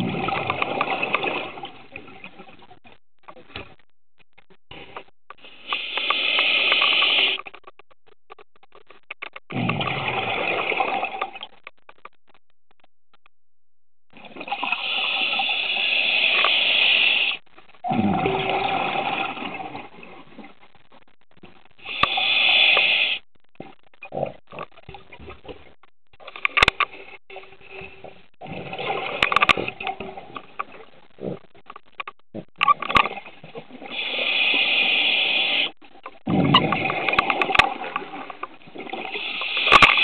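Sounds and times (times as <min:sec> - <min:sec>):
regulator inhalation hiss: 0:05.6 - 0:07.4, 0:14.7 - 0:17.4, 0:21.8 - 0:23.2, 0:33.9 - 0:35.7, 0:39.1 - 0:40.0
exhalation bubbling: 0:09.4 - 0:11.6, 0:14.2 - 0:20.5, 0:35.4 - 0:37.9.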